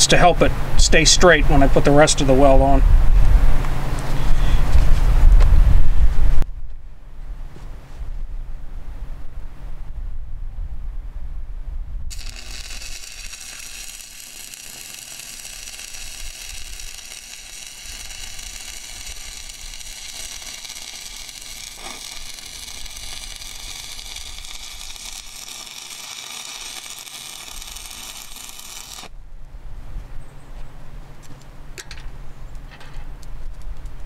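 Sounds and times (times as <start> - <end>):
arc welder crackling sizzle: 12.1 - 29.2.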